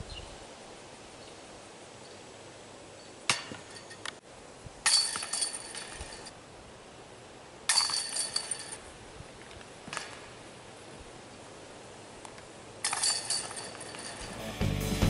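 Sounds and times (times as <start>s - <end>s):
discs hitting metal chains: 4.8s - 6.3s, 7.7s - 8.8s, 12.8s - 14.4s.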